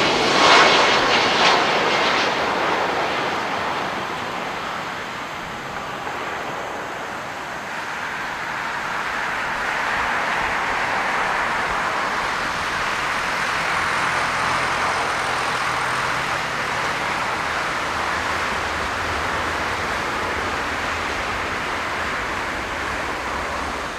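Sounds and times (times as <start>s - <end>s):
jet engine roar: 0.0s - 23.9s.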